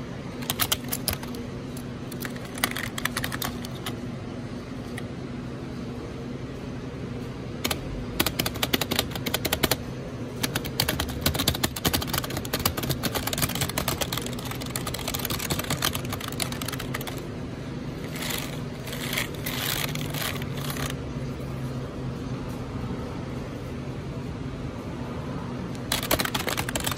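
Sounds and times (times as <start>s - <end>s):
keyboard keys clattering: 0.4s - 1.4s, 2.1s - 4.0s, 7.7s - 9.8s, 10.4s - 17.2s, 18.1s - 20.9s, 25.8s - 26.9s.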